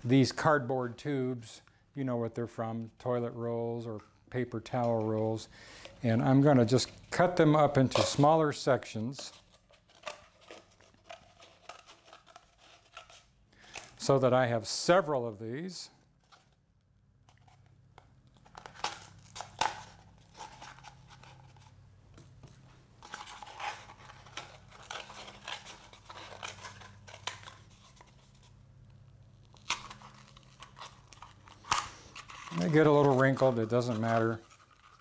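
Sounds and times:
cardboard crinkling and crunching: 6.0s - 14.2s, 18.4s - 21.8s, 23.0s - 28.6s, 29.4s - 35.0s.

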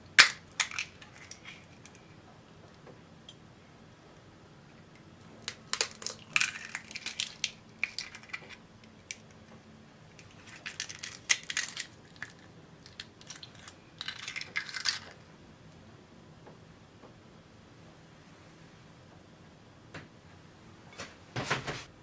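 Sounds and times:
eggshells cracking: 0.1s - 2.1s, 4.8s - 9.4s, 10.1s - 15.2s.

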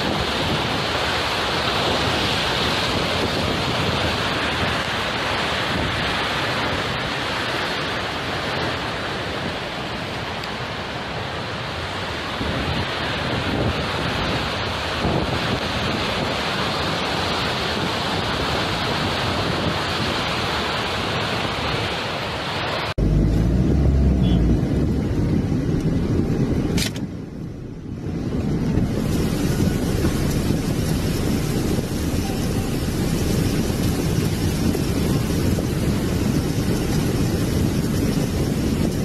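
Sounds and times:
flood torrent rushing: 0.0s - 39.0s
muffled floodwater rumble: 0.0s - 39.0s
sharp click: 26.7s - 27.1s.

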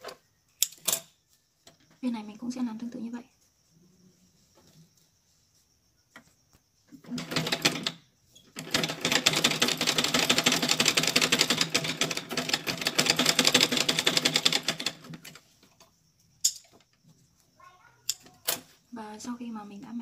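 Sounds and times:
sewing machine stitching: 7.0s - 15.4s.

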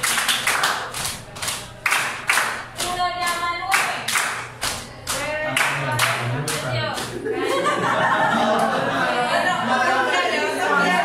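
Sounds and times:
people clapping in rhythm: 0.0s - 9.0s
voices singing: 5.0s - 11.0s.

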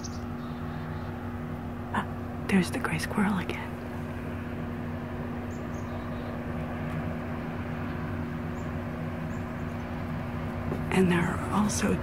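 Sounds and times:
mechanical hum with low tones: 0.0s - 12.0s.

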